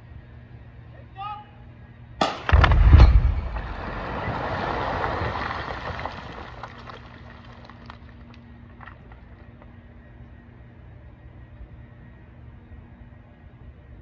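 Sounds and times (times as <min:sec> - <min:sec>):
dynamite blast boom: 0:02.2 - 0:06.0
rumble of shattered rock and debris: 0:02.4 - 0:09.7
small ticks of settling debris: 0:03.4 - 0:11.7.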